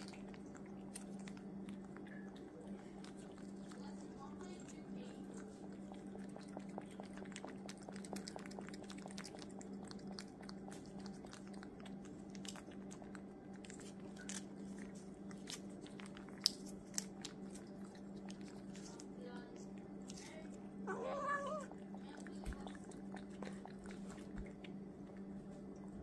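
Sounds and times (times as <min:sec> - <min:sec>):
cat licking wet clicks: 0:00.0 - 0:20.9, 0:21.5 - 0:25.9
steady low hum: 0:00.0 - 0:26.0.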